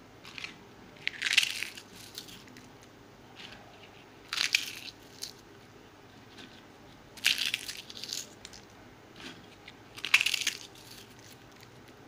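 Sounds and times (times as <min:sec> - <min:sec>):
crisp shells crunching: 0:00.2 - 0:02.7, 0:04.2 - 0:05.4, 0:07.2 - 0:11.8.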